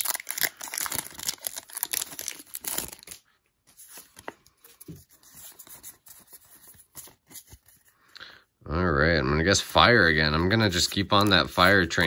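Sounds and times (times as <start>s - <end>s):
foil wrapper crinkling and tearing: 0.0s - 4.4s
cards sliding and rustling: 2.0s - 8.0s, 9.6s - 12.0s.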